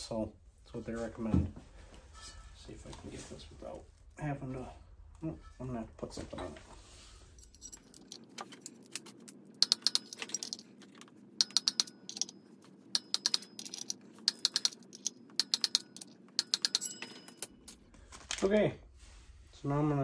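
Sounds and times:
ratchet wrench clicking: 9.6s - 10.6s, 11.4s - 12.3s, 13.0s - 17.8s.

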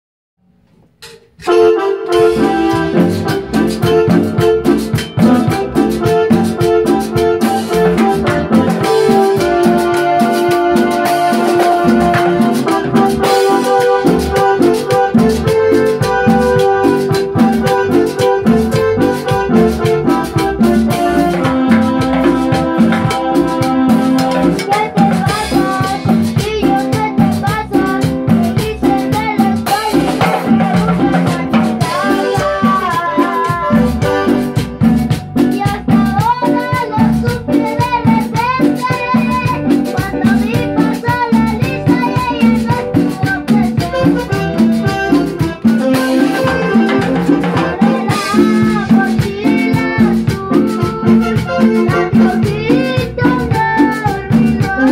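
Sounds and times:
congas: 0.4s - 54.9s
drum kit: 0.4s - 54.9s
rattle percussion: 0.6s - 54.9s
melody line: 1.5s - 25.5s, 43.5s - 52.3s.

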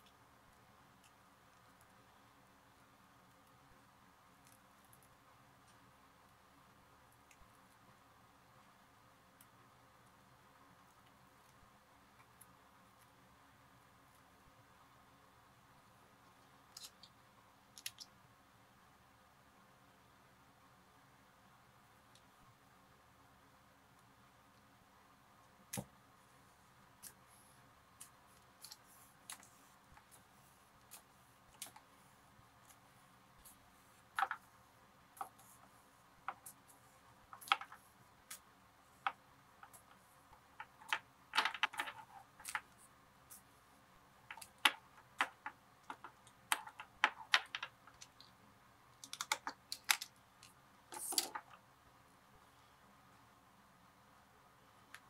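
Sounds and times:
small clicks and taps: 16.2s - 18.2s, 35.2s - 43.4s, 44.3s - 48.4s, 49.0s - 51.6s.

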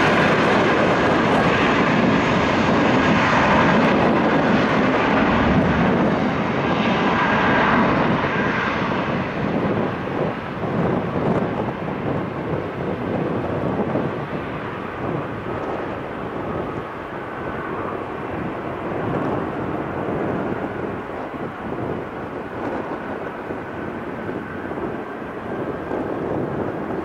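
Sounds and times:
jet engines at takeoff power: 0.0s - 27.0s.

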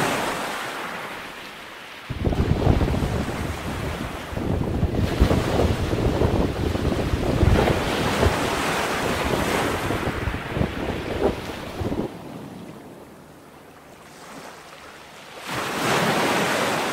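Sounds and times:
heavy surf on rocky shore: 0.0s - 13.5s, 14.1s - 16.9s
wind buffeting microphone: 2.1s - 12.5s.

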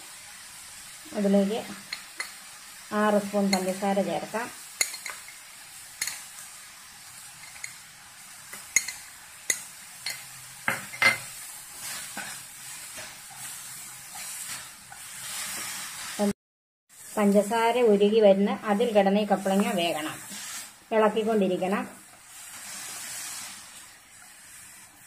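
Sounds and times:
food sizzling in a pan: 0.0s - 25.0s
wooden spatula scraping a pan: 7.0s - 16.4s, 18.7s - 25.0s.

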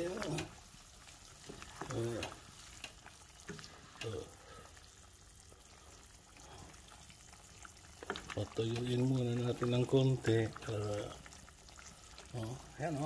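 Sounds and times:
sauce sizzling and simmering: 0.0s - 13.0s
wooden spoon stirring in pot: 0.0s - 13.0s.

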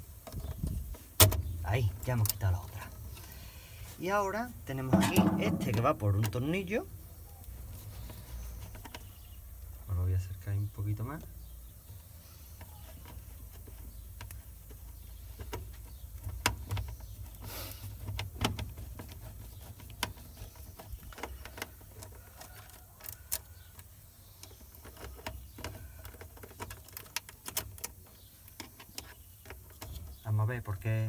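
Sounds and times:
plastic block handled: 4.8s - 6.4s.

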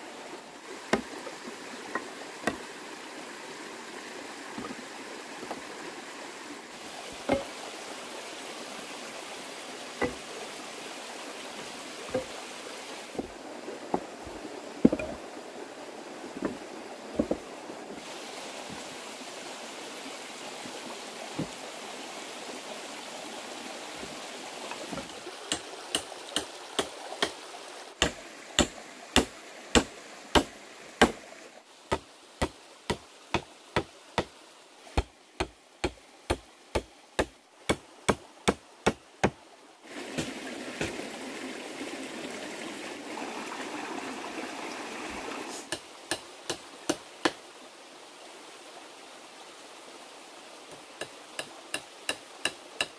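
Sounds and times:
tool striking sharp knocks: 2.0s - 2.6s, 28.0s - 31.2s.

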